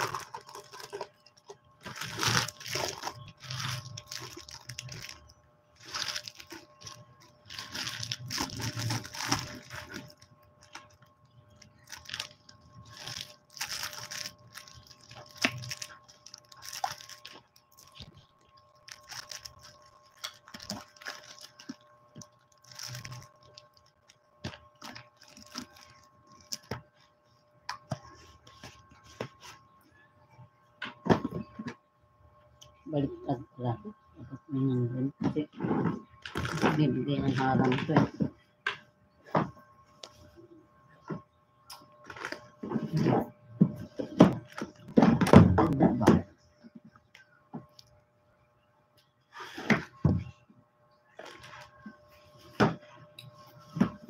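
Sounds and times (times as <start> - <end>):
plastic-wrapped candies crinkling: 0.0 - 27.1, 36.0 - 38.0, 41.7 - 43.1, 43.8 - 45.5, 51.0 - 52.4.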